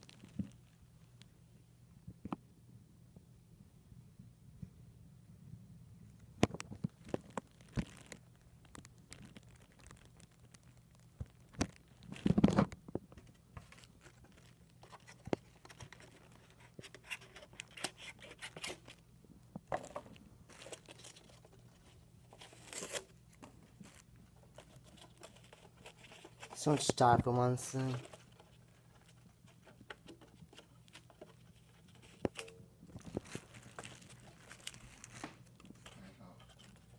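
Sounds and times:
plastic wrapping crinkling: 0.0 - 1.2, 6.5 - 36.9.

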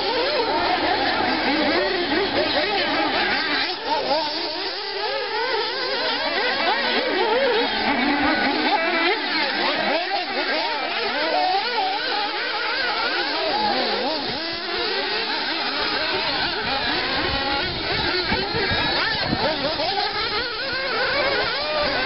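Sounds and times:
rc buggy engines racing: 0.0 - 22.0.

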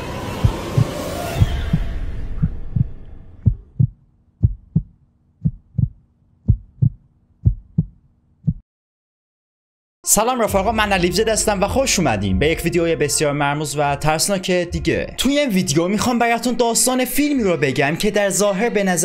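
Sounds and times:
dark rumbling drone: 0.0 - 4.9
heartbeat thumps: 0.4 - 8.6.

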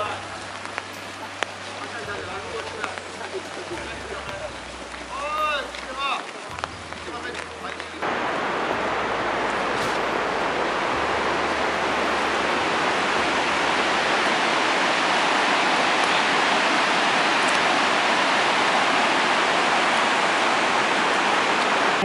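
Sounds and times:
river rushing over stones: 0.0 - 22.0.

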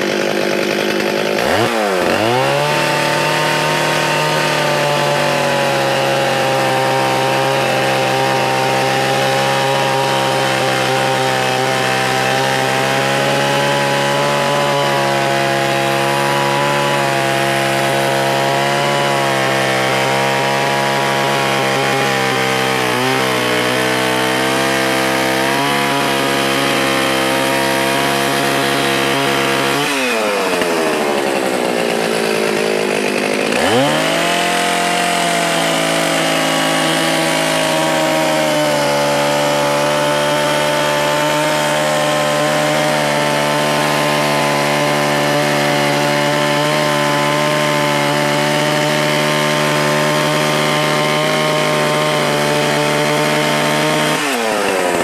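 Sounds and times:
chainsaw cutting through log: 0.0 - 55.0.

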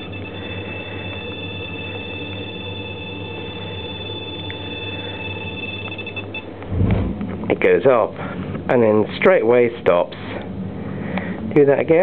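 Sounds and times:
high electronic alarm tone: 0.0 - 6.6
low steady hum: 0.0 - 12.0.

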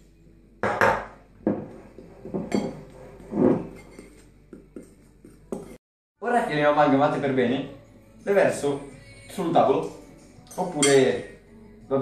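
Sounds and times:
fork scraping glass bowl: 1.7 - 4.3.

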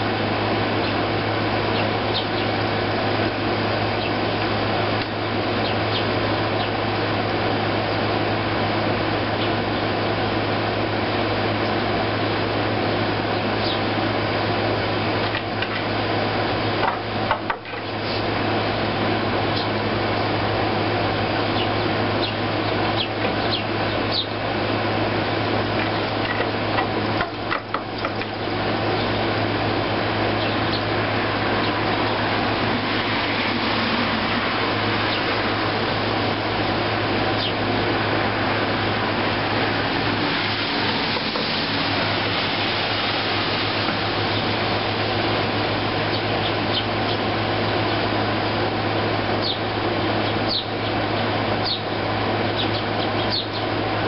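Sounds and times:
air conditioner whooshing: 0.0 - 54.0
sparrow chirps: 1.7 - 2.6, 5.6 - 6.8, 13.6 - 13.8, 21.5 - 24.3, 30.4 - 30.9, 37.4 - 37.6, 46.1 - 47.2, 49.4 - 49.6, 50.2 - 51.0, 51.6 - 51.9, 52.6 - 53.7.

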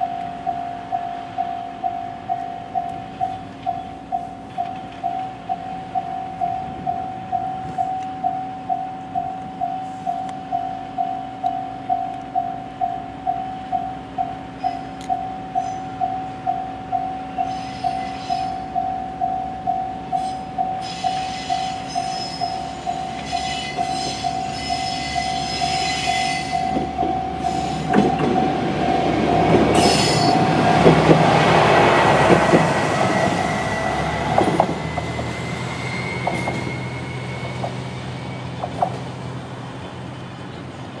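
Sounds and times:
level crossing warning bell: 0.0 - 34.4
high wheel squeal: 17.3 - 18.8, 20.1 - 30.8, 32.2 - 39.0
train wheels knocking on rail joints: 22.8 - 35.2, 38.6 - 39.2.

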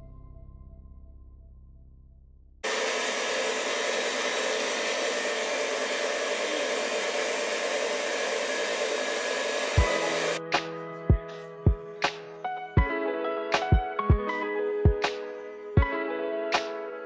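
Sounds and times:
stand mixer motor whirring: 2.6 - 10.4.

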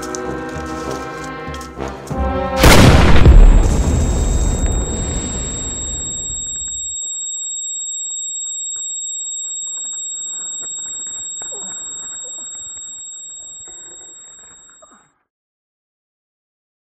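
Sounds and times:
high-pitched ringing tone: 3.8 - 15.0.

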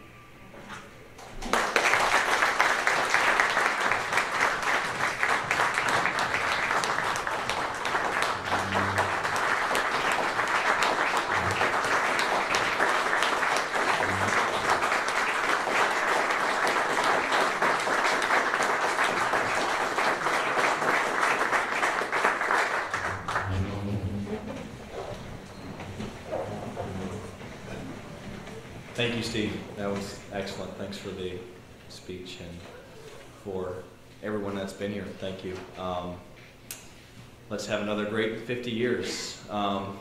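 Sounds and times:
audience applauding: 1.2 - 29.0.

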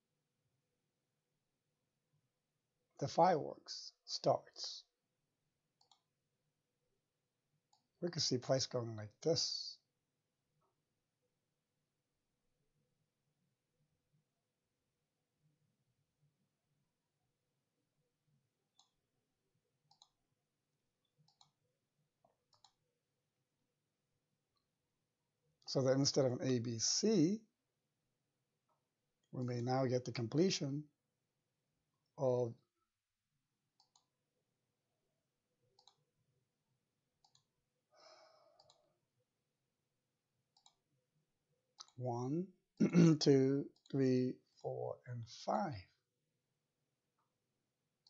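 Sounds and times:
computer mouse clicks: 5.8 - 6.1, 19.9 - 20.2, 21.0 - 21.6, 22.4 - 22.8, 33.8 - 34.1, 35.8 - 36.0, 37.2 - 37.5, 38.6 - 38.8, 40.5 - 40.8.

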